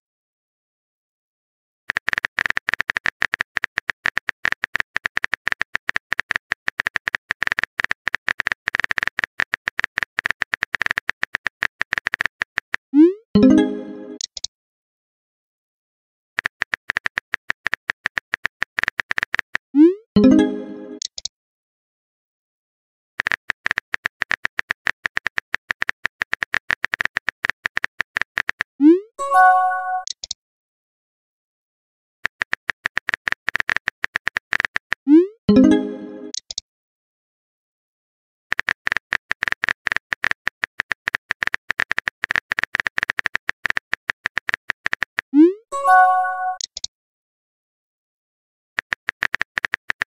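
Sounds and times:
rapid keyboard tapping clicks: 0:01.9 - 0:12.9, 0:16.4 - 0:19.6, 0:23.2 - 0:28.7, 0:32.2 - 0:35.0, 0:38.5 - 0:45.3, 0:48.8 - 0:50.0
multi-tone chime: 0:13.4 - 0:14.2, 0:20.2 - 0:21.0, 0:29.2 - 0:30.0, 0:35.5 - 0:36.4, 0:45.8 - 0:46.6.

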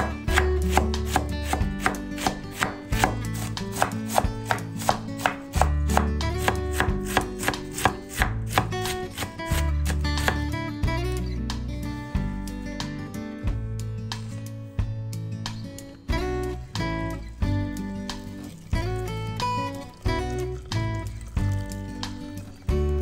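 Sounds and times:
knife cutting cabbage on board: 0:00.0 - 0:10.5
background music with bass line: 0:00.0 - 0:23.0.

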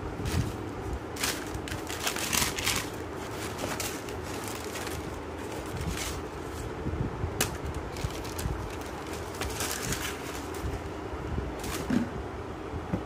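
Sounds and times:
low background hum: 0:00.0 - 0:13.0
tissue paper and cardboard box rustling: 0:00.1 - 0:06.7, 0:07.4 - 0:10.9, 0:11.6 - 0:12.0.

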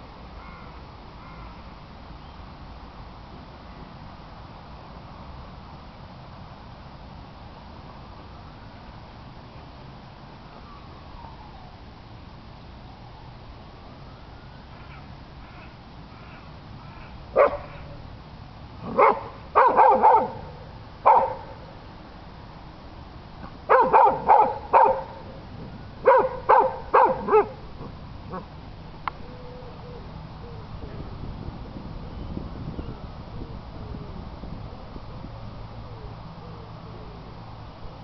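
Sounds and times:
dog barking: 0:17.4 - 0:17.8, 0:18.9 - 0:20.5, 0:21.1 - 0:21.5, 0:23.7 - 0:25.2, 0:26.0 - 0:27.6.

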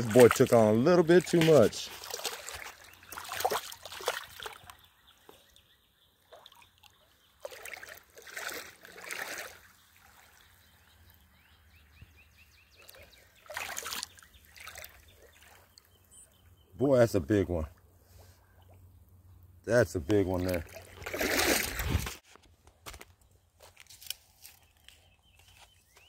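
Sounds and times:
splashing in shallow water: 0:00.0 - 0:05.6, 0:06.2 - 0:10.8, 0:12.8 - 0:15.9, 0:20.2 - 0:22.2
water trickling: 0:12.8 - 0:16.0.

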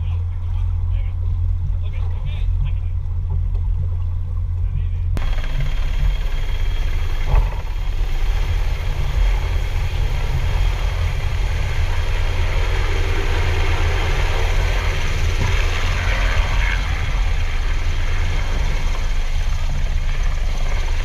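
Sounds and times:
outboard motor droning: 0:00.0 - 0:21.0
hiss of wind and water: 0:05.2 - 0:21.0.

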